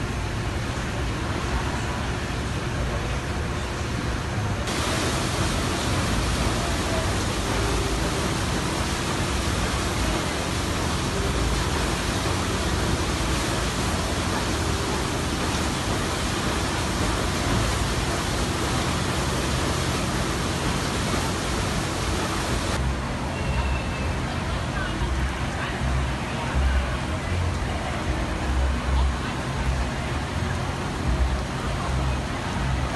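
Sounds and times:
paddlewheel splashing water: 0:00.0 - 0:32.9.

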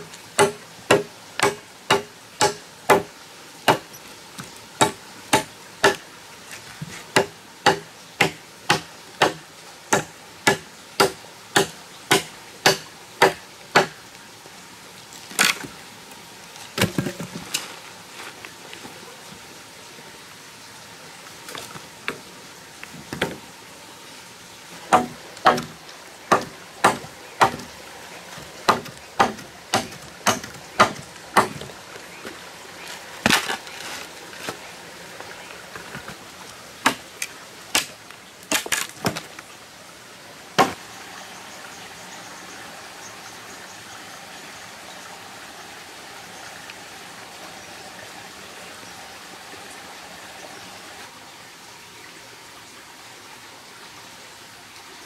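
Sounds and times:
stream running water: 0:00.0 - 0:55.0
machete chopping wood: 0:00.4 - 0:03.1, 0:04.8 - 0:06.0, 0:07.2 - 0:14.0, 0:24.9 - 0:27.7, 0:28.7 - 0:31.7, 0:40.6 - 0:40.8.

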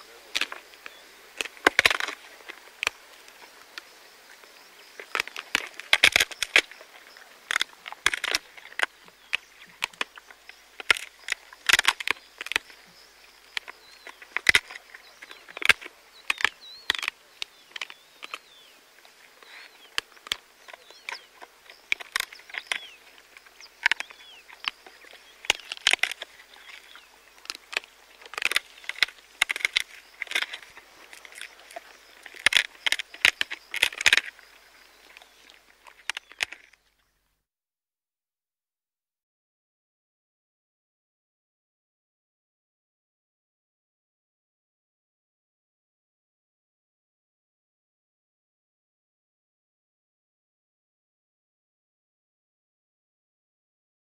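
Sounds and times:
faint insect drone: 0:00.0 - 0:37.4
hyena crunching bones: 0:00.1 - 0:03.9, 0:04.8 - 0:36.9.

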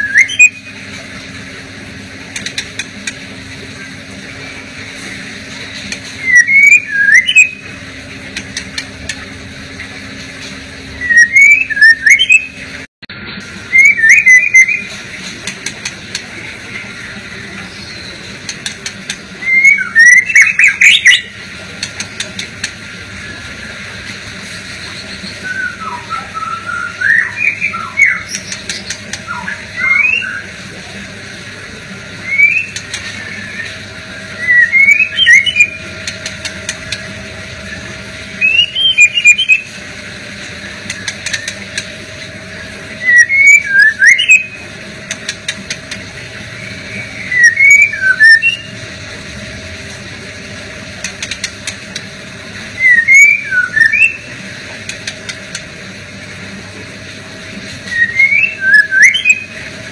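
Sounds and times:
bird singing whistled phrases: 0:00.0 - 0:00.8, 0:06.2 - 0:07.8, 0:10.9 - 0:12.6, 0:13.7 - 0:14.9, 0:19.4 - 0:21.4, 0:25.0 - 0:30.5, 0:32.2 - 0:35.9, 0:37.7 - 0:39.7, 0:43.0 - 0:44.6, 0:46.6 - 0:48.8, 0:52.8 - 0:54.3, 0:57.9 - 0:59.6
steady low hum: 0:00.0 - 0:59.9
bird clicks: 0:02.3 - 0:03.2, 0:40.8 - 0:41.9, 0:51.0 - 0:52.1.

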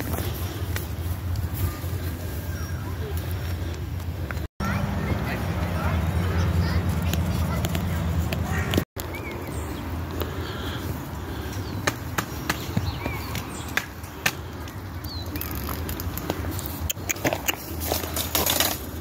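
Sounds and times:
goats tearing and chewing grass: 0:00.0 - 0:03.8.

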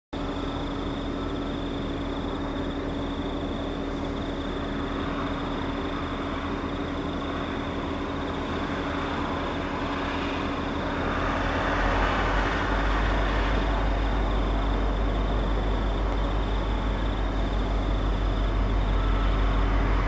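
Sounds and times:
distant diesel locomotive engine: 0:00.2 - 0:20.0.

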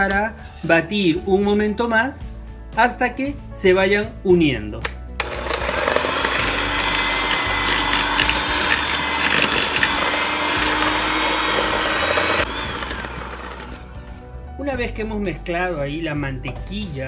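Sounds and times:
beaters scraping sugar in bowl: 0:05.2 - 0:14.1
electric hand mixer running: 0:05.2 - 0:14.2.

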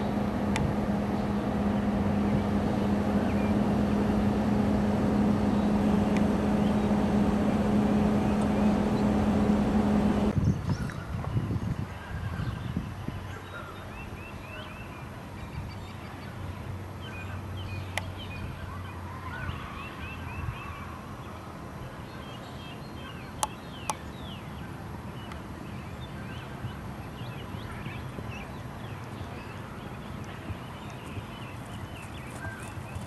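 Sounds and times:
low background rumble: 0:00.0 - 0:10.3.

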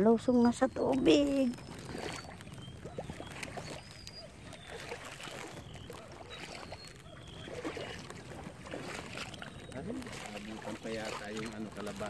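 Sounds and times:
floodwater sloshing while wading: 0:00.0 - 0:12.0.

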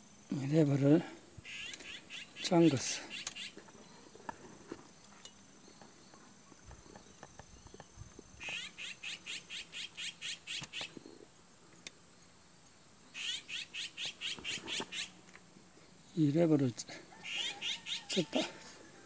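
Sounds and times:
small animal chirping: 0:01.5 - 0:03.6, 0:08.4 - 0:11.0, 0:13.1 - 0:15.2, 0:17.2 - 0:18.4.

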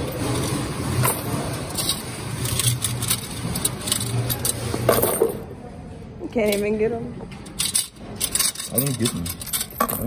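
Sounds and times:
coins clattering and clicking: 0:00.1 - 0:05.4, 0:07.4 - 0:10.0.

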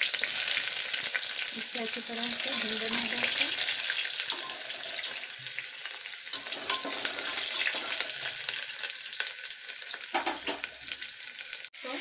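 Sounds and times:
onions sizzling in hot oil: 0:00.0 - 0:12.0
metal spatula scraping a pot: 0:02.4 - 0:05.4, 0:06.3 - 0:08.6.

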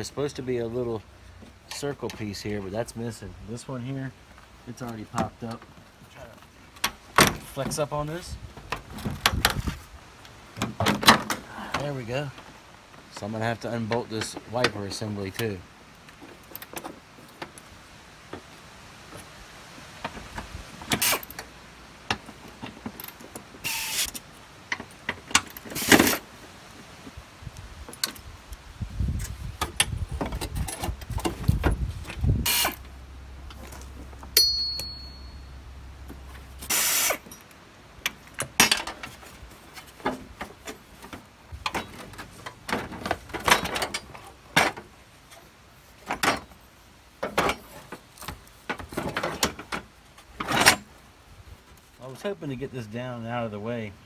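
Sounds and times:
low steady hum: 0:27.2 - 0:54.0.

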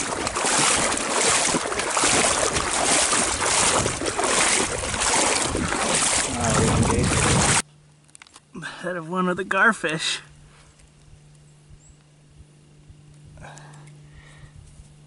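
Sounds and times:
legs wading through water: 0:00.0 - 0:07.6
wind on microphone: 0:00.0 - 0:07.6.

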